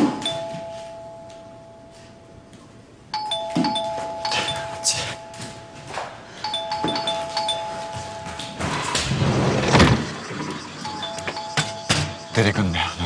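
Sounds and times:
two-note doorbell chime: 0:00.0 - 0:02.2, 0:03.1 - 0:08.7, 0:10.8 - 0:12.6.

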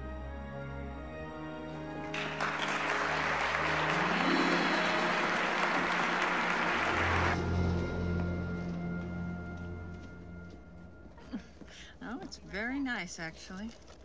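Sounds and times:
film score with sustained chords: 0:00.0 - 0:11.4
audience applause: 0:01.8 - 0:08.4.

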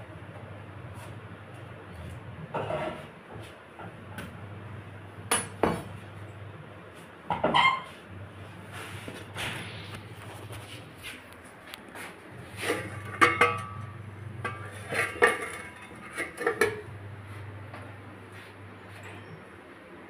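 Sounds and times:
metal spatula scraping pan: 0:02.5 - 0:03.1, 0:12.5 - 0:16.9
low steady hum: 0:03.8 - 0:20.0.

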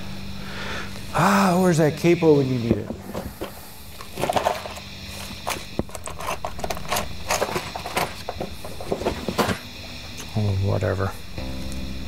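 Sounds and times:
guitar amplifier hum: 0:00.0 - 0:12.0
handling clicks and knocks: 0:02.7 - 0:09.6.

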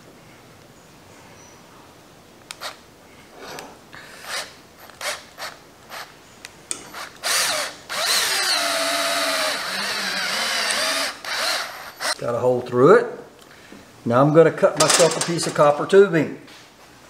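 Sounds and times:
cordless drill boring through rubber: 0:04.0 - 0:06.1, 0:06.9 - 0:12.2.

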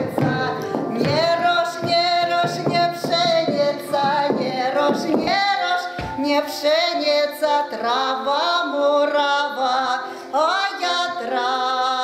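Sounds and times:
sharp knocks: 0:00.0 - 0:05.4
woman singing folk song: 0:00.0 - 0:12.0.

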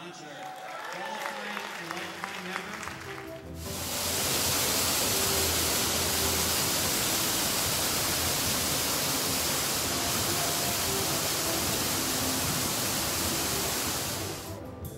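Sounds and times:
waterfall rushing and splashing: 0:03.6 - 0:14.5.

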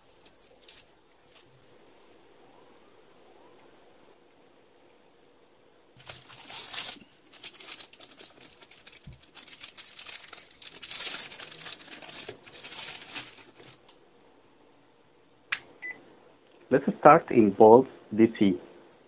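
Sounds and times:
plastic bags crinkling: 0:00.0 - 0:02.1, 0:06.0 - 0:13.9.

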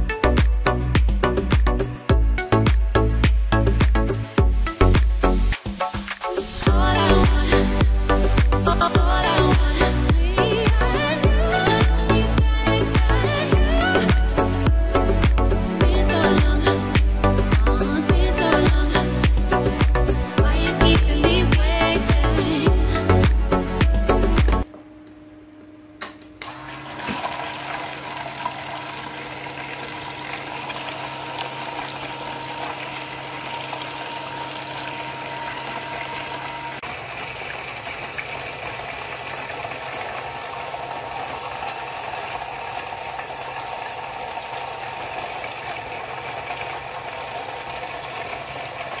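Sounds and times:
pump humming: 0:00.0 - 0:49.0
fountain water splashing: 0:27.0 - 0:49.0.

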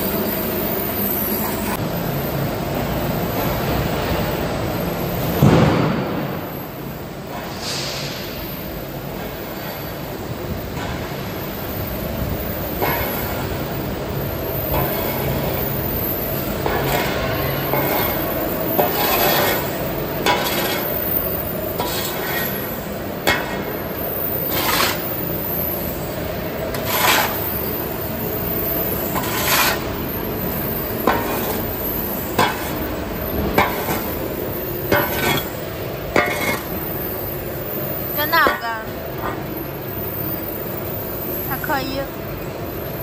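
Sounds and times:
machinery noise: 0:09.2 - 0:43.0
shovel scraping concrete floor: 0:12.8 - 0:13.5, 0:14.7 - 0:15.6, 0:16.5 - 0:25.9, 0:26.6 - 0:36.9
shovel crunching biochar: 0:16.7 - 0:21.1, 0:21.7 - 0:22.7, 0:24.4 - 0:25.2, 0:26.7 - 0:27.6, 0:29.1 - 0:30.0, 0:31.1 - 0:36.8.

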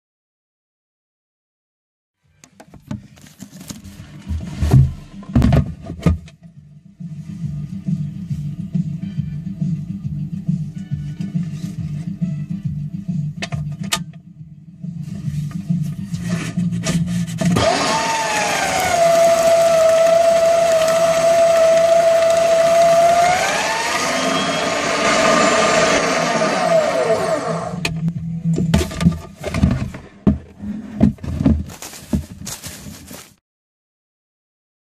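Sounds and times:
paper shredder whining: 0:17.4 - 0:27.8.

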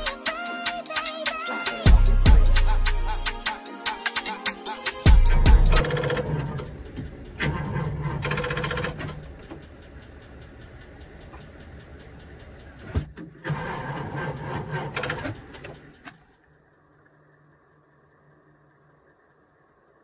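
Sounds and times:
diesel engine clattering: 0:05.2 - 0:16.0.

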